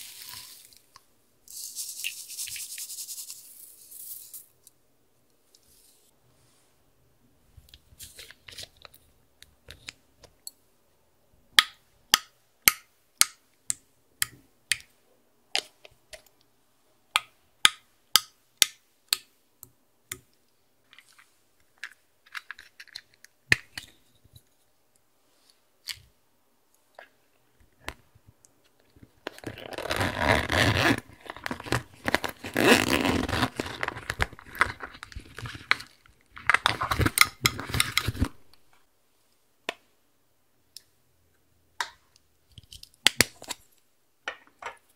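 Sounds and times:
vinyl pouch crinkling: 29.4 - 38.4.

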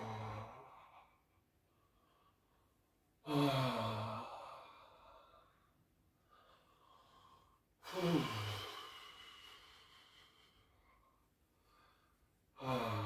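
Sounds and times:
man sighing: 7.8 - 8.8.

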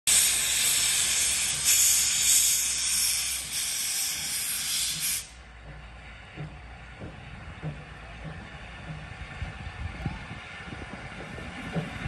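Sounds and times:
loud hiss of steam: 0.1 - 5.4.

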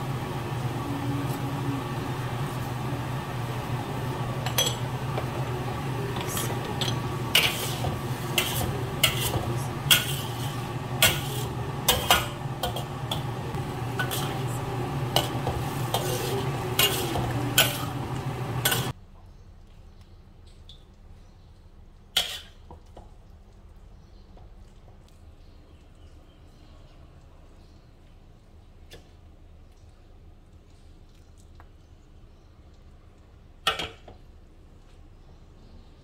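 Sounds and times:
low hum: 0.0 - 18.9
metal ladle scraping a wok: 6.2 - 18.9, 22.2 - 22.6.

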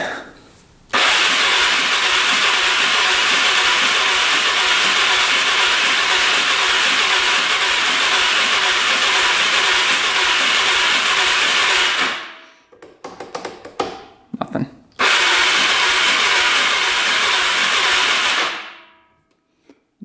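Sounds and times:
engine cranking on electric starter: 0.9 - 12.4, 15.0 - 18.8.

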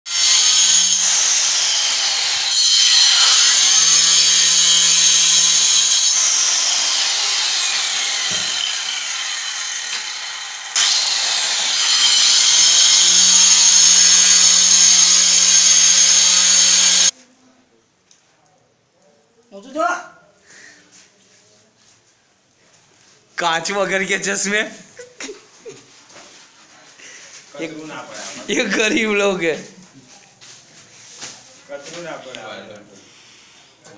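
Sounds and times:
electric cutter cutting tile: 0.1 - 17.1.

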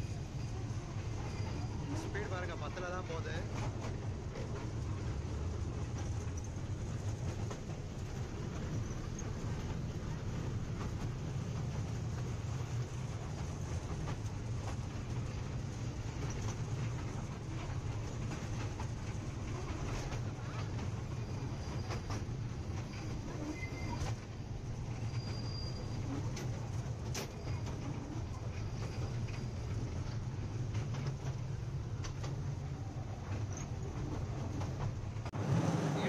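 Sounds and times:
high wheel squeal: 0.0 - 2.2, 21.2 - 24.2, 24.8 - 26.5.

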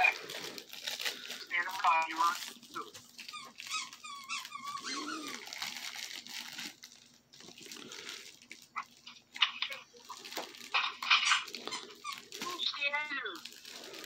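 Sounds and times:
gift wrap rustling: 0.0 - 14.0
dog whining: 2.7 - 5.8.

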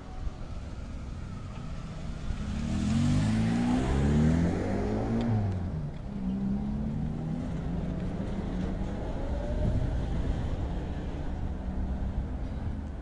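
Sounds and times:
street traffic rumble: 0.0 - 13.0.

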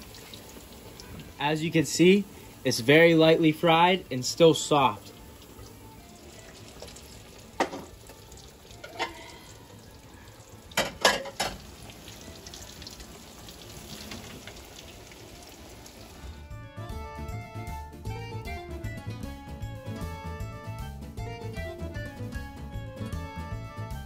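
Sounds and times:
eggplant slices sizzling in oil: 0.0 - 16.4
metal utensil clinking on pan: 8.8 - 9.3, 10.8 - 11.6.

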